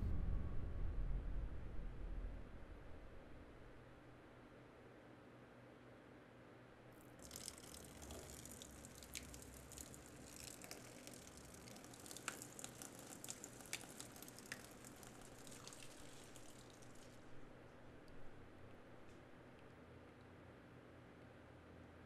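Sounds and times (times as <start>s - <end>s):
liquid trickling and dripping: 7.1s - 20.4s.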